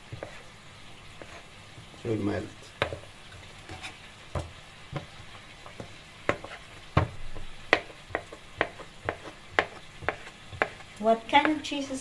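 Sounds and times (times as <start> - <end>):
faint frying pan sizzle: 0.0 - 12.0
knife tapping on plastic cutting board: 2.8 - 3.0, 4.3 - 10.8.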